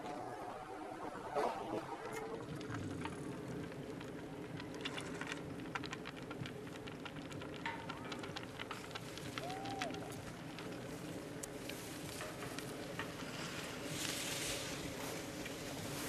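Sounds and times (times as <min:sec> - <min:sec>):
low outdoor background: 0:00.0 - 0:16.0
light clicks and crackles: 0:01.4 - 0:16.0.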